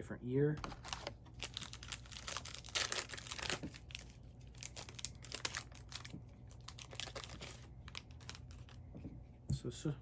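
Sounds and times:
plastic wrapper tearing and crinkling: 0.6s - 8.8s.

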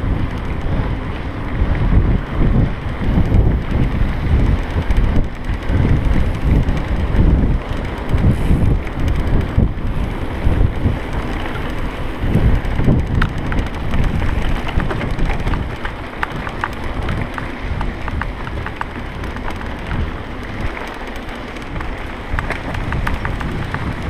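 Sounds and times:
bike rolling on dirt trail: 0.0s - 24.0s
wind buffeting microphone: 0.0s - 24.0s
quick light clicks and rattles: 2.8s - 24.0s.

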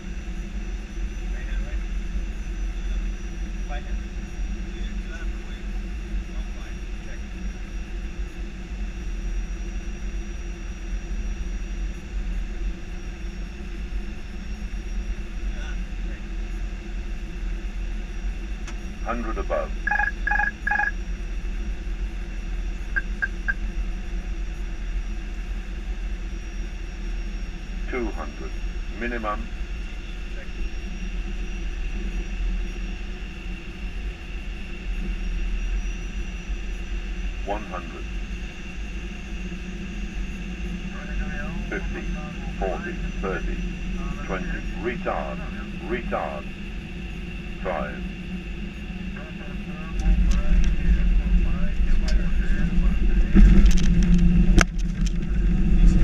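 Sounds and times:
low rumble of airflow and engines: 0.0s - 56.0s
faint high whines: 10.8s - 25.2s
thin high whine: 19.1s - 21.1s, 22.8s - 23.7s
low rumble: 19.6s - 24.2s, 41.0s - 56.0s.

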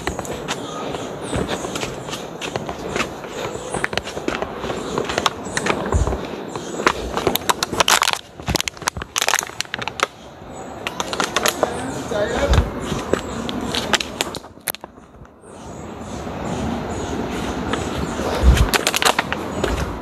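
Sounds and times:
footsteps crunching on trail: 0.0s - 10.0s.

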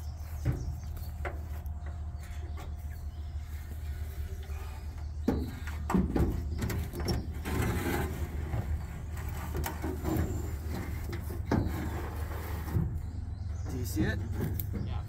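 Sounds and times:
knocks scrapes and rustles: 0.0s - 15.0s.

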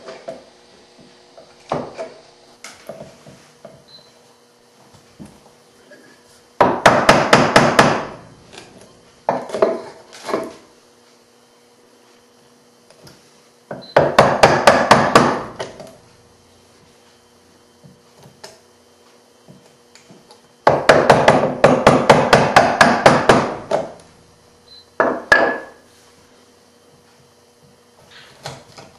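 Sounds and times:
mallet striking chisel: 6.6s - 8.2s, 13.7s - 15.9s, 20.6s - 24.0s.

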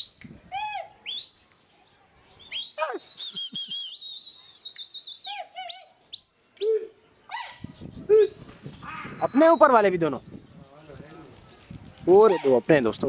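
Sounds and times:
person whistling: 2.6s - 5.2s.

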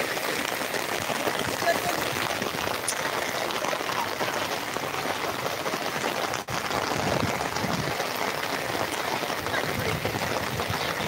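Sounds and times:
rain pattering: 0.0s - 11.0s.

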